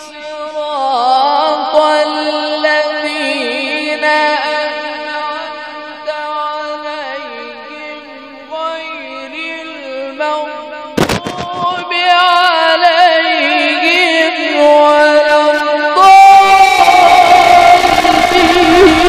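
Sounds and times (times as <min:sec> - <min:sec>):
man reciting melodically into microphone: 0:00.0 - 0:19.0
sharp knock: 0:11.0 - 0:11.8.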